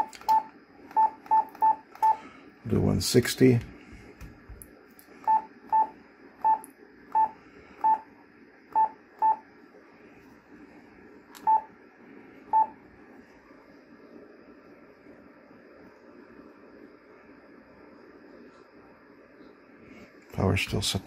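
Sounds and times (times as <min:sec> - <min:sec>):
transceiver key-press beeps: 0:00.0 - 0:02.2, 0:05.2 - 0:08.0, 0:08.7 - 0:09.4, 0:11.4 - 0:11.7.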